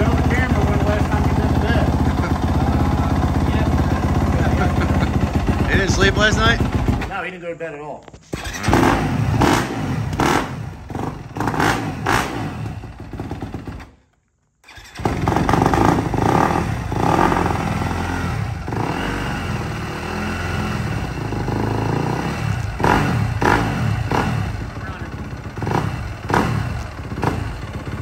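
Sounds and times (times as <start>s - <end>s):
dirt bike engine revving: 0.0s - 7.3s, 8.3s - 13.9s, 14.6s - 28.0s.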